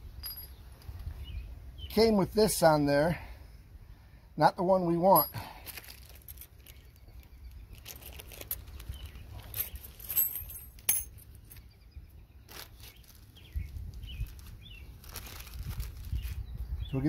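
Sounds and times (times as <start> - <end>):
small metal parts clinking: 0.1 - 0.9, 5.1 - 11.7.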